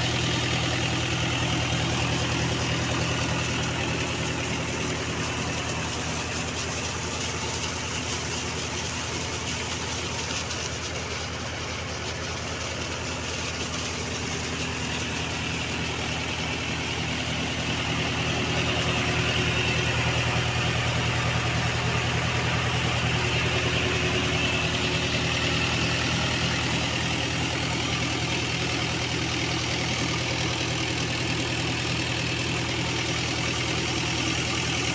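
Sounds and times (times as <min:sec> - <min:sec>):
tractor diesel engine idling: 0:00.0 - 0:34.9.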